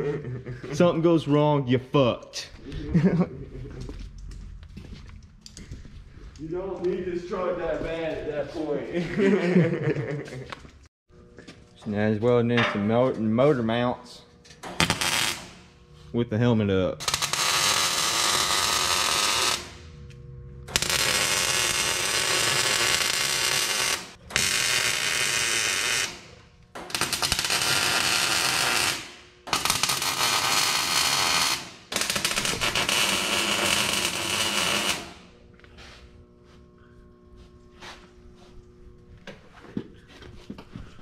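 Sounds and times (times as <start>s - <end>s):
welder arc crackling and hissing: 13.6s - 39.0s.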